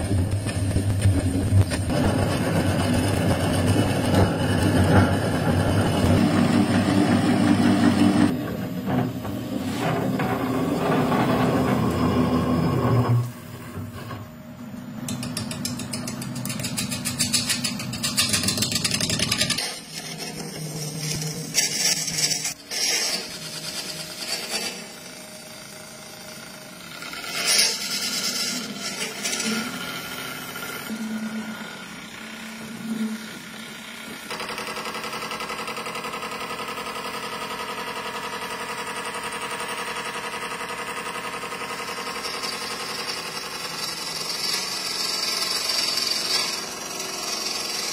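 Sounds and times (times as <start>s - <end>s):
lathe spinning: 0.0s - 22.6s
drill bit boring wood: 1.9s - 8.3s, 8.9s - 13.4s, 40.2s - 47.9s.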